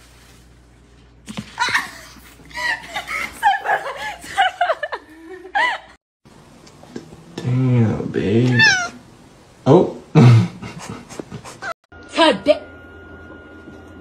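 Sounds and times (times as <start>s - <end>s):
person laughing: 1.6s - 6.0s, 10.1s - 11.8s.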